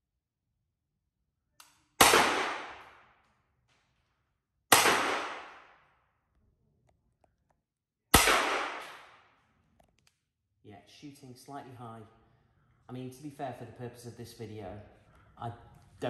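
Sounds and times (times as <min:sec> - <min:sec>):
pellet pistol shots: 0:02.0 - 0:03.2, 0:04.7 - 0:05.8, 0:08.1 - 0:09.4.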